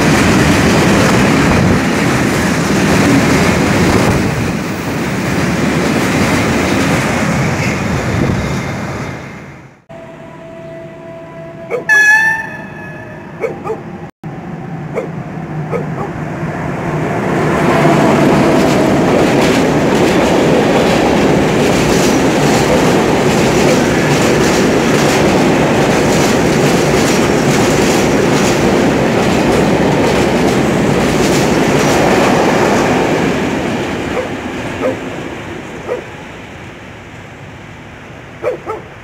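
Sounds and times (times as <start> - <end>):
train wheels rumbling on rails: 0.0 - 9.9, 15.7 - 36.8.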